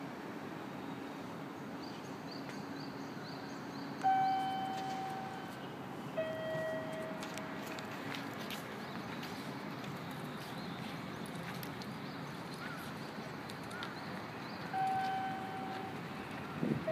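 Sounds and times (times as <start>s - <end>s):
two-note chime: 4.0s - 5.6s, 6.2s - 7.4s, 14.8s - 15.9s.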